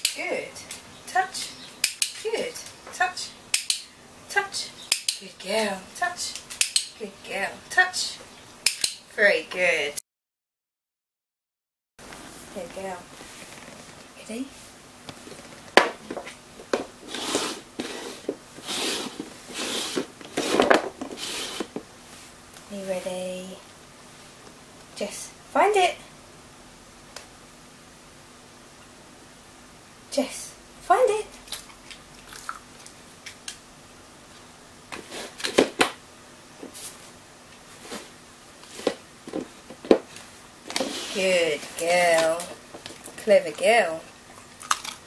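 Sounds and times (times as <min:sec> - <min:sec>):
plastic pots scraping on board: 0:15.2 - 0:21.9, 0:37.8 - 0:43.0.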